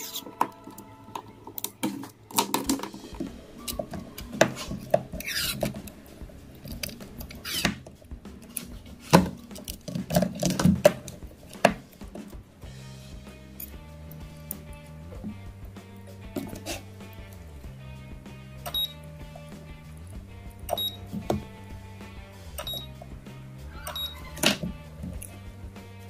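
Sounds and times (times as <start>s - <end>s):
battery cells clicking: 18.6s - 19.1s, 22.6s - 23.0s.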